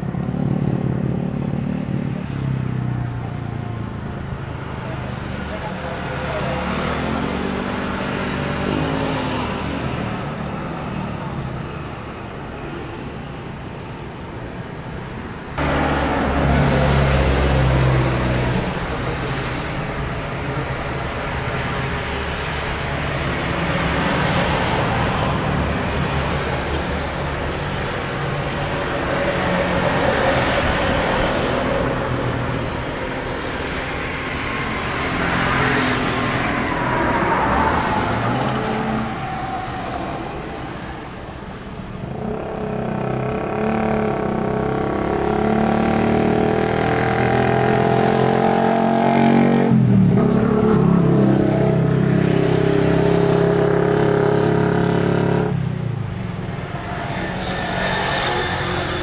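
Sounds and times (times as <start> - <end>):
jet engines roaring: 15.4 - 42.8, 49.7 - 59.0.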